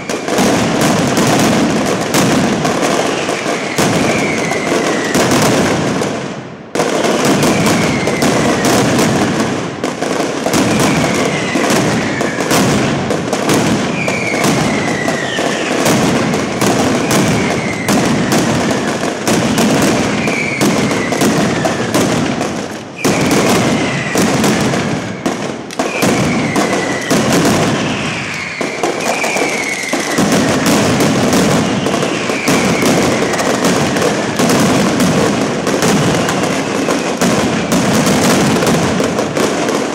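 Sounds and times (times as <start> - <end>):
firecrackers exploding rapidly: 0.0 - 39.9
falling whistle: 3.6 - 5.1, 14.0 - 15.8, 17.0 - 18.0, 20.2 - 21.2, 25.9 - 30.2, 31.6 - 33.5.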